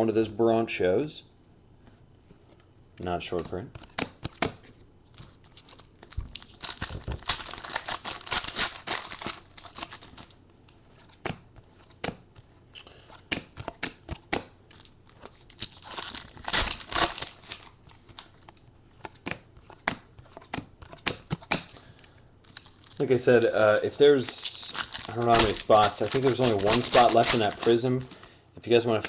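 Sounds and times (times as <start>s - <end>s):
foil wrappers tearing and crinkling: 5.5s - 10.3s, 14.7s - 18.3s, 22.5s - 28.1s.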